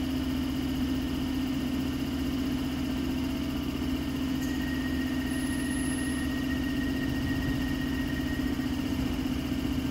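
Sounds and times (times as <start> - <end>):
train low hum: 2.6 - 9.9
faint high whines: 4.2 - 9.9.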